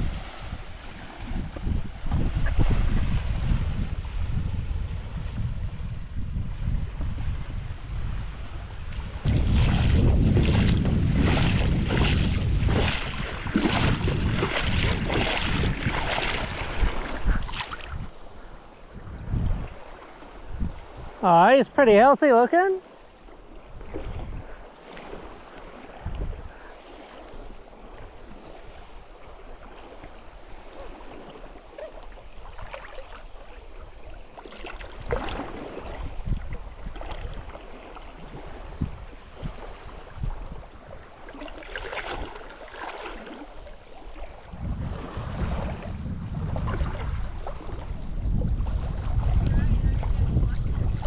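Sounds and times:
wind on microphone: 0.0s - 51.0s
water sloshing around legs: 8.5s - 18.7s, 29.2s - 49.4s
small splashes: 8.9s - 18.0s, 29.4s - 48.0s.

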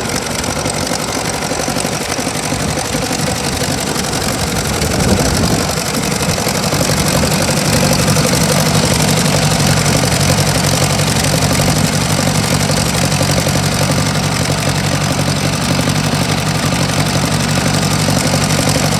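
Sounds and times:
tractor engine idling: 0.0s - 18.9s.

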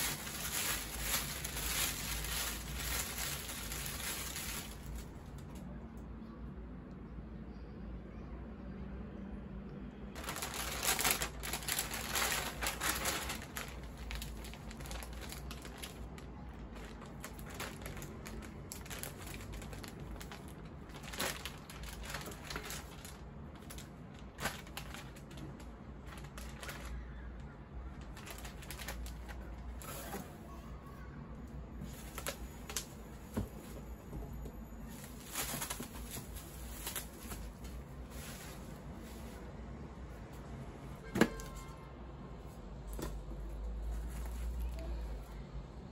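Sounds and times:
plastic packaging crinkling: 0.0s - 5.6s, 10.2s - 30.3s, 31.8s - 33.9s, 34.8s - 39.5s.

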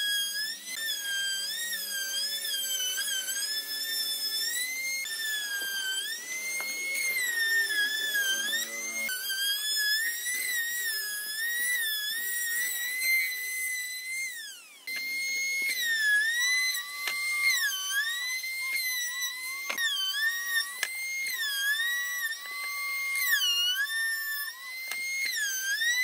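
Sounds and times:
router whining cutting wood: 0.0s - 26.0s.

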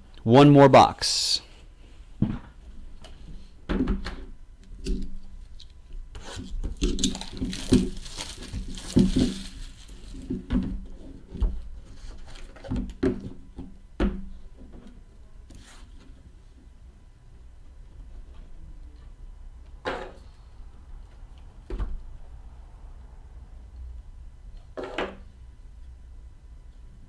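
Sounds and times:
boxes knocking on tabletop: 8.5s - 9.5s.

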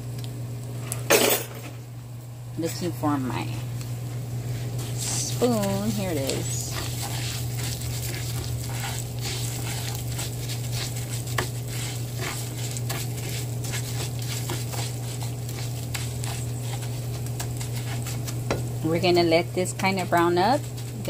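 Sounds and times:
steady low hum: 0.0s - 21.0s
rice sizzling in oil: 3.3s - 21.0s
wooden spoon scraping pan: 4.5s - 21.0s.

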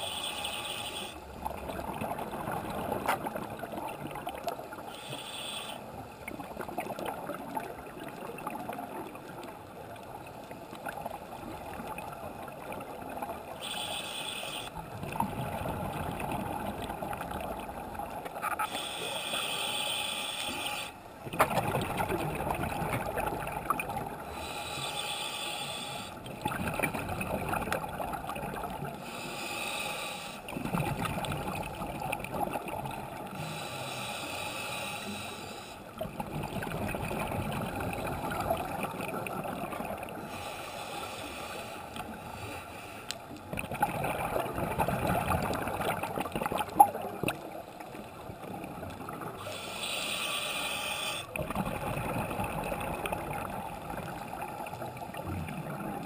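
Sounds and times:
regulator hissing inhale: 0.0s - 1.3s, 4.9s - 6.0s, 13.6s - 14.7s, 18.6s - 21.0s, 24.2s - 26.2s, 29.0s - 30.5s, 33.3s - 35.9s, 40.2s - 43.3s, 49.4s - 51.3s
gurgling exhaled bubbles: 14.8s - 18.2s, 21.2s - 24.2s, 26.2s - 29.0s, 30.5s - 33.4s, 36.0s - 40.2s, 43.5s - 49.4s, 51.3s - 56.0s.

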